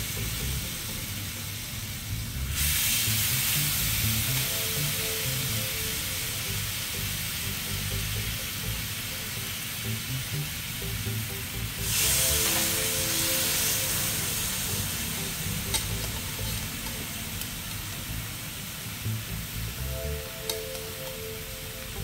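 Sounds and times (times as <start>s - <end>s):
meat sizzling on grill pan: 11.8s - 19.6s.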